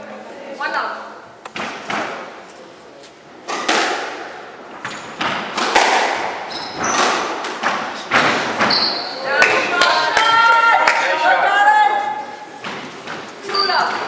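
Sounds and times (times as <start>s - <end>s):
squash ball thwacks: 3.5s - 4.3s, 5.2s - 8.7s
shoes squeaking on wooden floor: 6.4s - 9.3s, 12.6s - 14.0s.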